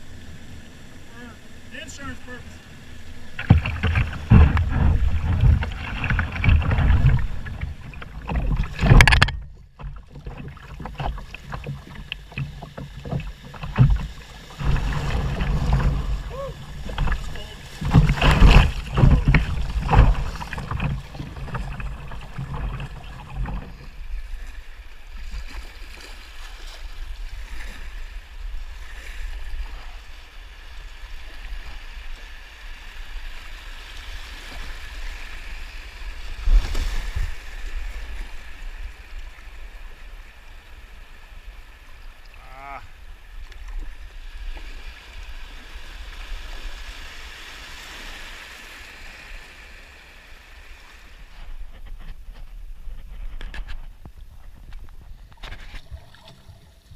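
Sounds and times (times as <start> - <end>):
river water rushing: 0.0 - 25.2
wind buffeting microphone: 3.1 - 12.0.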